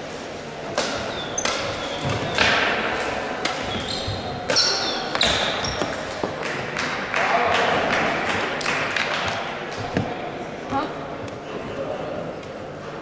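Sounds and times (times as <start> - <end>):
shoe squeaks on floor: 3.6 - 6.0.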